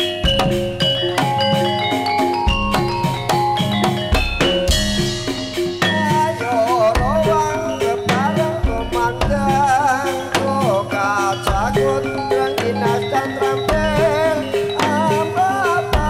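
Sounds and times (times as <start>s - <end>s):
steady drum strokes: 0.0s - 13.1s
metallophone melody: 0.0s - 16.0s
wavering melody line: 0.0s - 16.0s.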